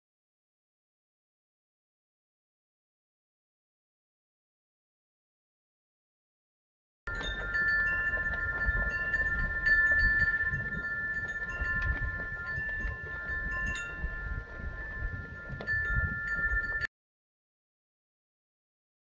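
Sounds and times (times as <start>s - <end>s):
wind chimes ringing: 7.1s - 16.9s
wind rumbling on microphone: 7.1s - 16.9s.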